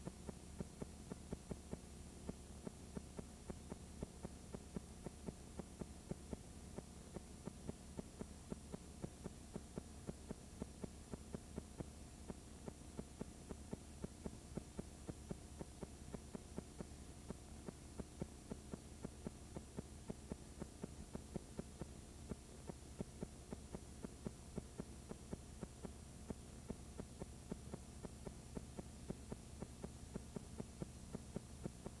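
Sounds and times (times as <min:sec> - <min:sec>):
faint electrical hum: 0:00.0 - 0:32.0
sharp repeating tick: 0:00.0 - 0:32.0.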